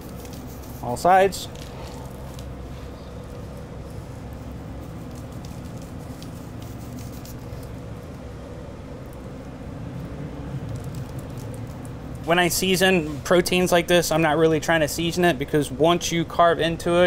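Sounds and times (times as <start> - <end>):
low background rumble: 0.0 - 13.0
light ticks of salt shaking: 3.2 - 8.2, 9.0 - 12.3.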